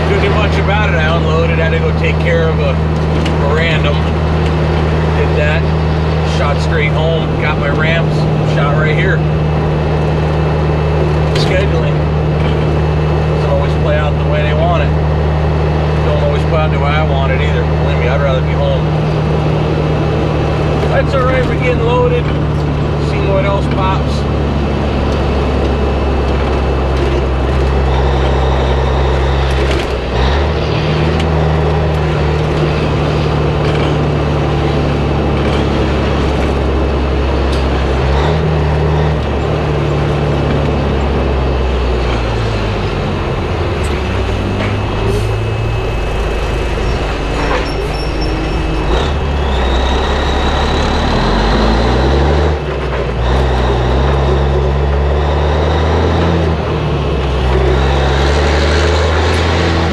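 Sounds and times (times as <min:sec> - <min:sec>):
knocks and rattles: 0:00.0 - 0:13.5, 0:18.6 - 0:45.2
truck diesel engine shifting gears: 0:00.0 - 0:59.9.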